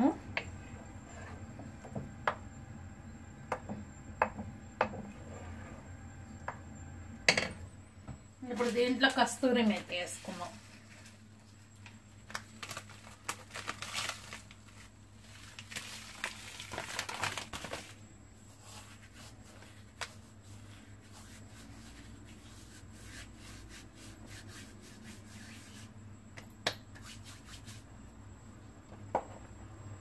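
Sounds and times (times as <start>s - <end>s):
dry leaves crushed and rustling: 12.3s - 17.9s.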